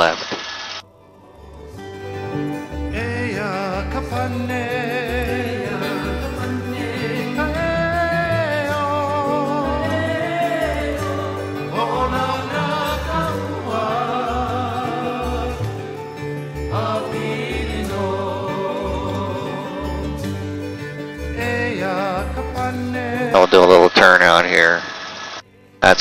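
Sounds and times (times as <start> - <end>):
person singing with vibrato: 2.9 - 20.6, 21.3 - 23.6.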